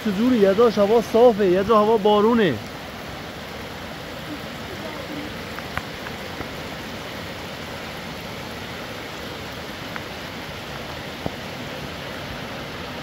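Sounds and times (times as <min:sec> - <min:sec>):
steady rain: 0:00.0 - 0:13.0
faint ticks: 0:05.5 - 0:06.5.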